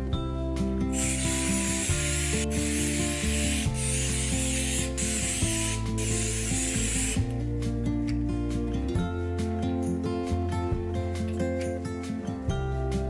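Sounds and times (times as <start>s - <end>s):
soft background music: 0.0s - 13.0s
aerosol can spraying: 0.9s - 7.4s.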